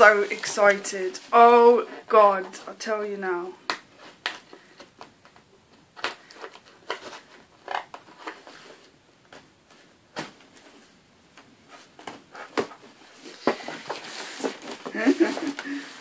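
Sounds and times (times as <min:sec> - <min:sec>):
tape and cardboard rustling: 0:03.7 - 0:10.8, 0:11.7 - 0:16.0.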